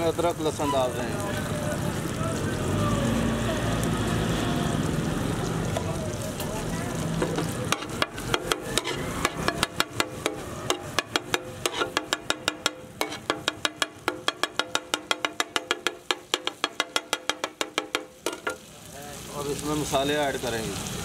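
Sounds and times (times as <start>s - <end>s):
vegetables sizzling on a griddle: 0.0s - 21.0s
spatula clacking on griddle: 7.1s - 18.7s
metal spatula scraping: 7.2s - 18.6s.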